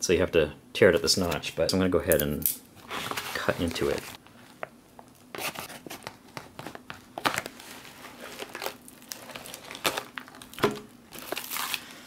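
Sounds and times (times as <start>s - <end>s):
plastic bag crinkling: 5.1s - 12.0s.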